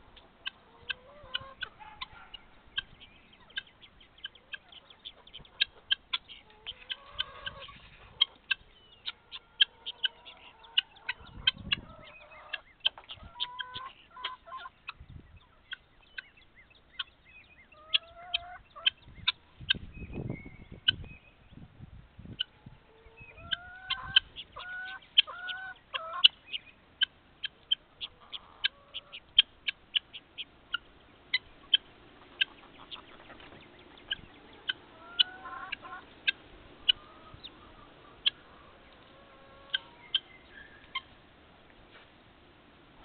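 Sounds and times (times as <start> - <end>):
hens clucking: 0.0 - 20.0, 22.3 - 41.2
hens pecking: 0.1 - 14.8, 22.9 - 43.0.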